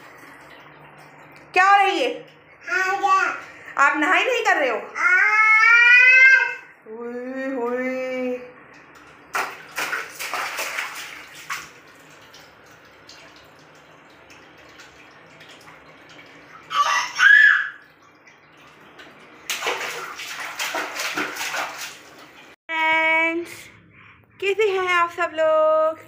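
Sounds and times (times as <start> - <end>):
high-pitched child vocal sound: 5.0 - 6.7, 16.7 - 17.8
child splashing water: 8.8 - 22.6.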